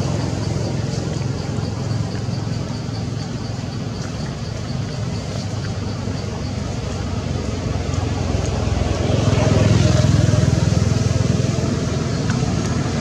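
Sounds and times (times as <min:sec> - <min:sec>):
faint high ticks: 0:12.1 - 0:12.8.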